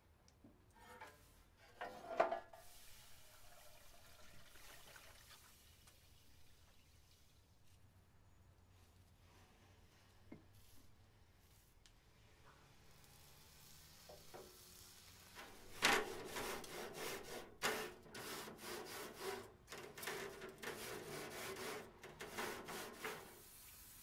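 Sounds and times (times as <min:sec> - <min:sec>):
scrubber rasping on metal grate: 0:15.4 - 0:23.4.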